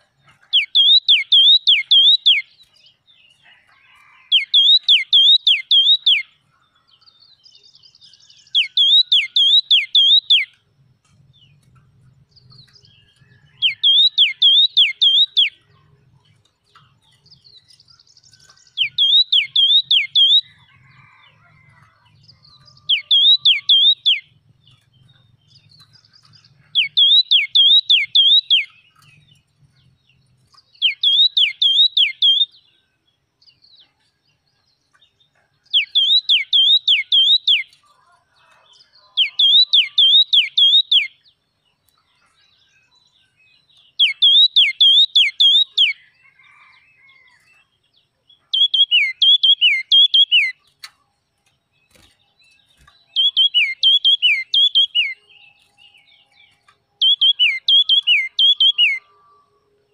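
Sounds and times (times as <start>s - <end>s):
bird singing whistle-like notes: 0.5s - 2.6s, 4.2s - 6.3s, 7.5s - 10.6s, 12.3s - 15.7s, 16.7s - 21.1s, 22.4s - 29.4s, 30.7s - 32.6s, 35.7s - 37.8s, 39.0s - 41.2s, 43.9s - 46.7s, 48.5s - 50.6s, 52.7s - 59.5s.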